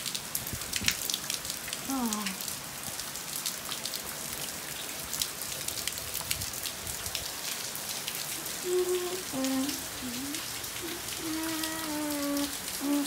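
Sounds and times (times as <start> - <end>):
heavy rain on patio: 0.0 - 13.0
low vocal sounds: 8.4 - 13.0.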